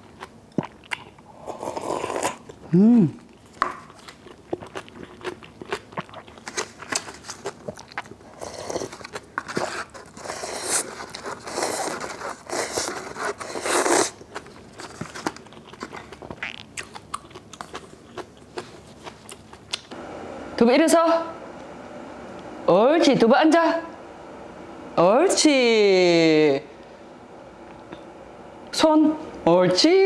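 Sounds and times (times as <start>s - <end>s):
wet chewing: 0.0s - 2.6s, 3.2s - 20.0s
slurping: 8.3s - 14.2s.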